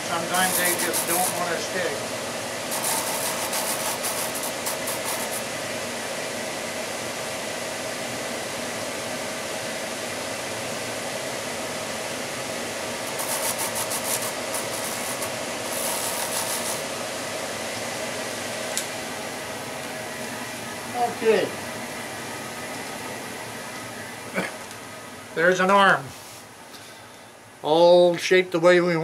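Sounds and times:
wood rasping against sanding drum: 0.0s - 1.7s, 2.7s - 5.4s, 13.0s - 16.9s
drum sander running: 0.0s - 24.4s.

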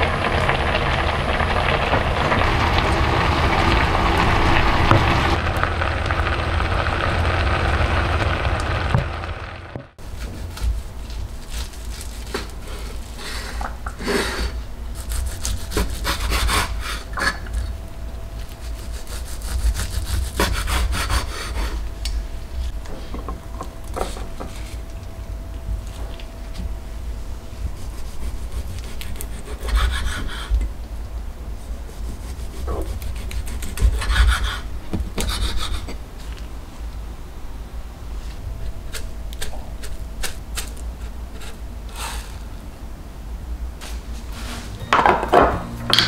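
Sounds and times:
glaze bubbling in frying pan: 0.0s - 10.0s
knife sawing on cutting board: 15.0s - 16.8s, 18.8s - 21.5s, 27.8s - 30.5s, 32.0s - 34.6s.

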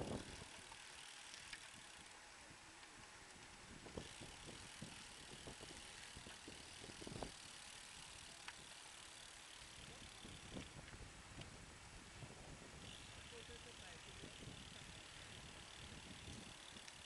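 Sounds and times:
bike clicks and knocks: 0.0s - 2.0s, 2.8s - 11.5s, 15.7s - 17.0s
bicycle tyres hissing on asphalt: 0.0s - 17.0s.

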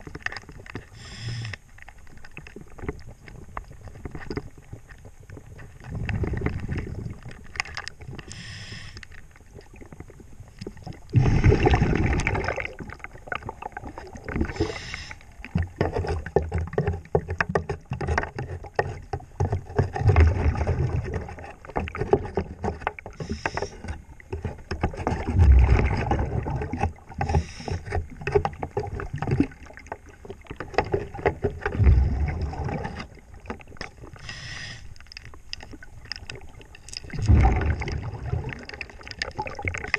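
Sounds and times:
diver regulator breathing: 0.9s - 1.8s, 8.2s - 9.2s, 14.4s - 15.5s, 23.1s - 24.0s, 27.1s - 28.2s, 34.1s - 35.1s.

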